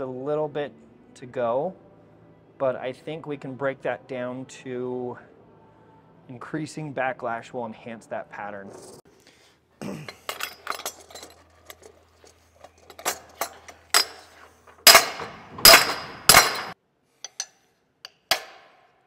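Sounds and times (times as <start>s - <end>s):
hand tools clinking on metal: 10.0s - 18.6s
sharp metal strikes: 14.8s - 16.8s.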